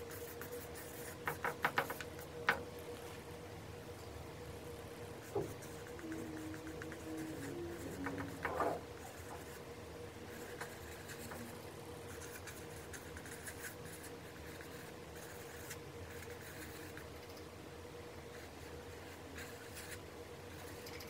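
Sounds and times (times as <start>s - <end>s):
marker scratching on paper: 0.0s - 2.2s, 5.2s - 9.6s, 10.3s - 17.1s, 18.3s - 21.0s
faint steady hum: 0.0s - 21.0s.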